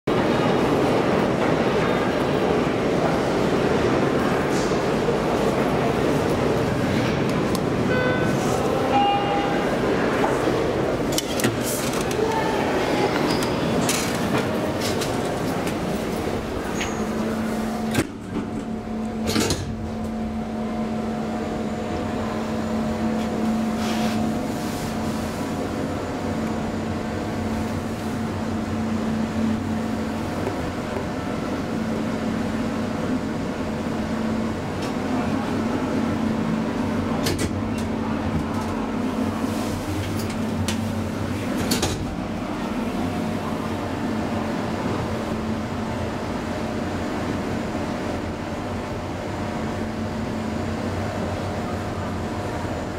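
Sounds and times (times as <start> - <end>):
elevator mechanical hum: 0.1 - 52.9.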